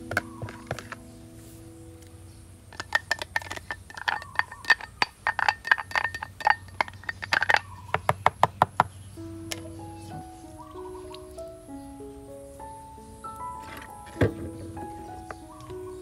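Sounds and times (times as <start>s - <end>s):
utensils clinking against cookware: 2.7s - 7.9s.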